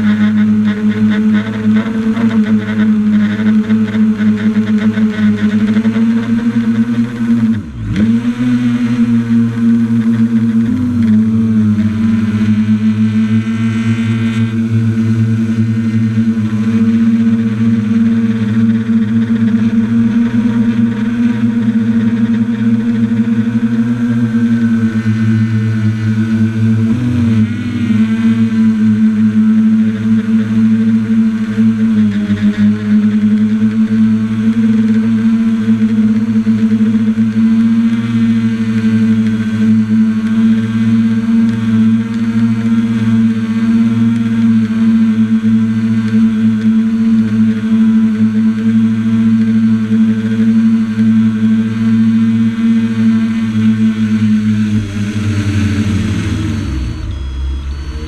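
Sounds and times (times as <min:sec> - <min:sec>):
drone motors humming: 0:00.0 - 0:58.0
high whine: 0:00.0 - 0:58.0.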